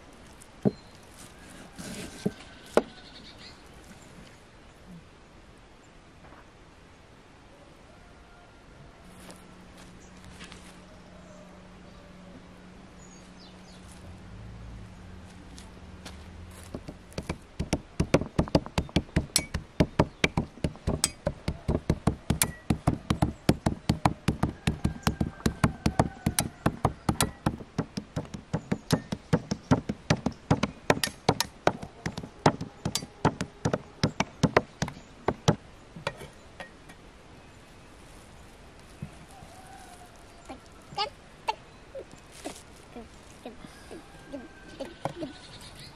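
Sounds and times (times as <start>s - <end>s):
cleaver chopping meat on wood: 16.7s - 35.6s.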